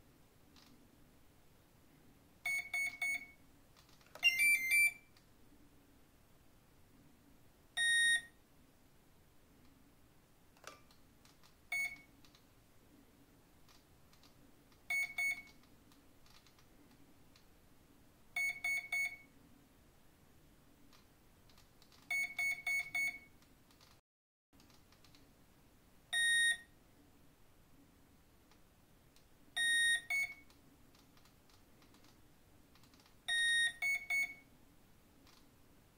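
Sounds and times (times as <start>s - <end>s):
short electronic beeps: 2.5s - 3.4s, 4.2s - 5.1s, 7.8s - 8.3s, 11.7s - 12.1s, 14.9s - 15.5s, 18.4s - 19.2s, 22.1s - 23.3s, 26.2s - 26.7s, 29.6s - 30.4s, 33.3s - 34.4s
long electronic beep: 4.2s - 5.0s.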